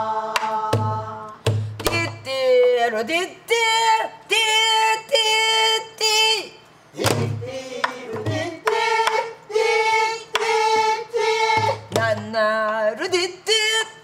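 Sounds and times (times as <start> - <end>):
woman singing wordless vocables: 0.0 - 6.6, 11.6 - 14.0
barrel drum thumps and clicks: 11.6 - 12.4.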